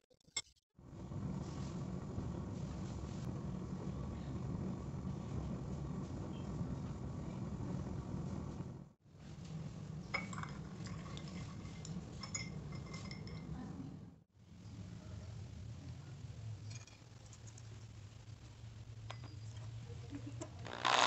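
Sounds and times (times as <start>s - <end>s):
steady low hum: 0.8s - 21.0s
metal rod clinking in mug: 10.1s - 13.5s.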